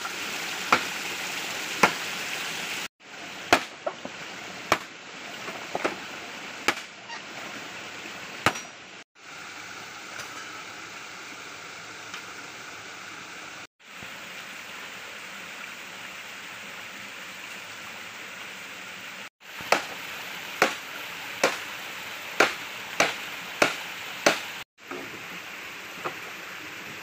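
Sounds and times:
stream rushing: 0.0s - 27.0s
blade chopping bamboo: 1.8s - 2.0s, 3.5s - 3.9s, 4.7s - 4.9s, 6.7s - 6.9s, 19.6s - 20.0s, 20.6s - 20.8s, 21.4s - 21.7s, 22.4s - 24.6s.

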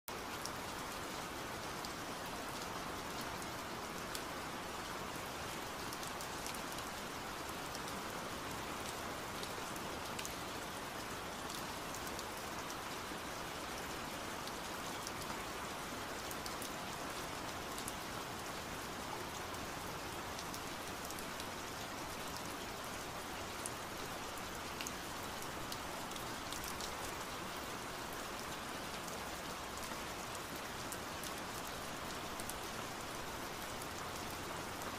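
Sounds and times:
steady rain: 0.1s - 34.9s
rain drop ticks: 8.8s - 10.4s.

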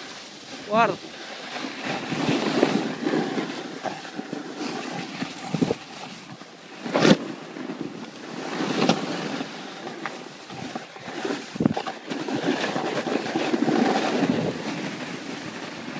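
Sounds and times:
scraping across snow: 0.0s - 15.9s
wind buffeting microphone: 10.5s - 12.8s.

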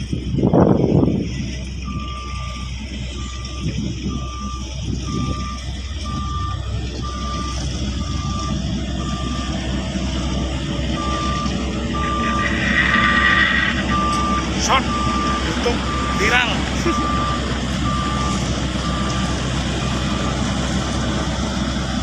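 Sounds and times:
road roller engine rumble: 0.0s - 22.0s
reversing alarm beeping: 1.8s - 22.0s.

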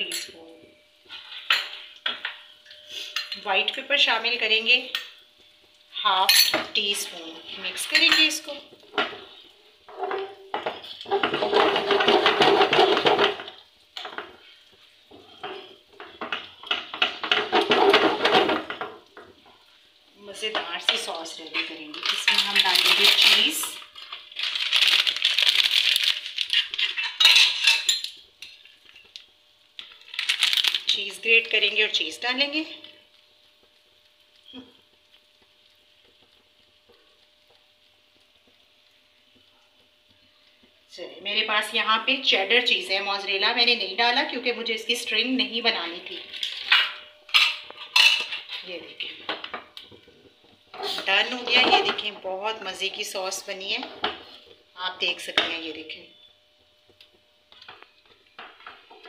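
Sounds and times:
sauce sizzling and popping: 0.8s - 59.0s
spatula scraping a frying pan: 9.9s - 13.2s.

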